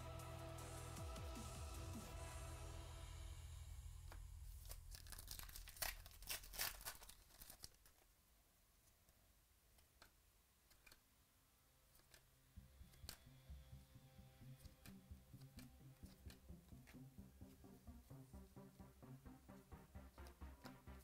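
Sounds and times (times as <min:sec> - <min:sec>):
cards clicking: 0:04.1 - 0:08.1
wrapper crinkling being torn: 0:04.5 - 0:08.1.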